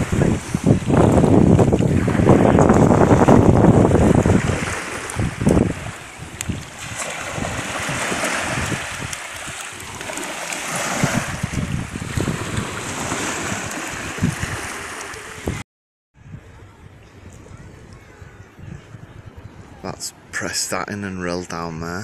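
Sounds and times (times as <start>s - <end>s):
small waves washing on sand: 0.0s - 15.6s
wind buffeting microphone: 0.0s - 15.6s, 16.2s - 21.2s.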